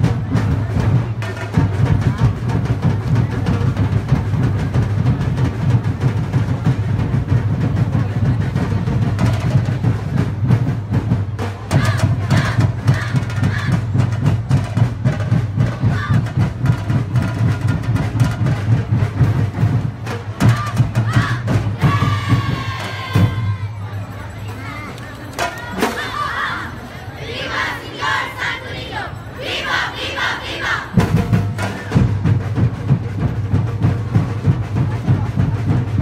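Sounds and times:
percussion ensemble drumming: 0:00.0 - 0:36.0
voices shouting: 0:15.8 - 0:16.3, 0:20.4 - 0:31.1.

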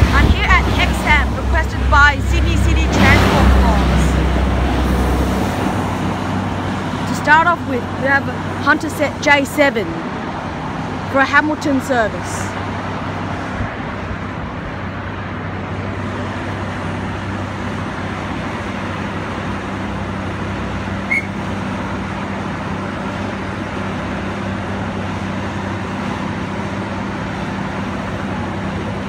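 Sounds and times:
diesel engine idling hum: 0:00.0 - 0:11.4, 0:12.0 - 0:29.0
short high chirp: 0:21.1 - 0:21.4.

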